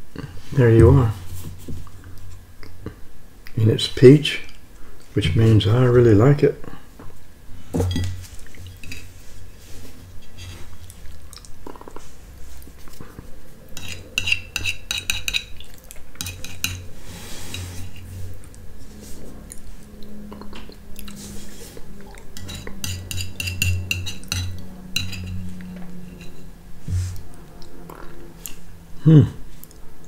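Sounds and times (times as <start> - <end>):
spoon scraping ceramic plate: 8.8 - 9.1, 13.8 - 15.6, 16.2 - 18.2, 22.4 - 26.5.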